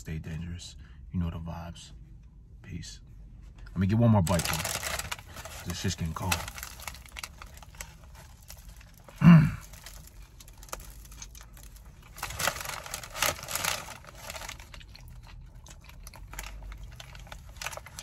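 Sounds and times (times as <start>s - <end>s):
crinkling wrapper: 4.2s - 18.0s
person chewing: 6.5s - 18.0s.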